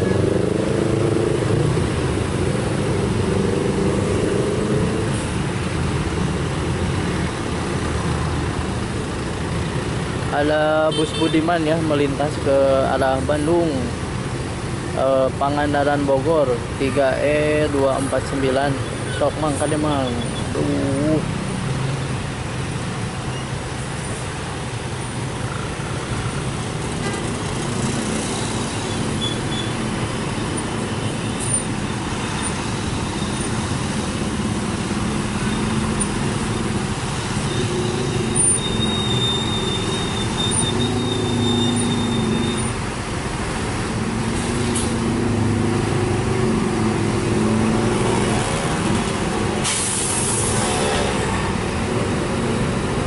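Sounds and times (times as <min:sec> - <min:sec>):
traffic hum: 0:00.0 - 0:53.0.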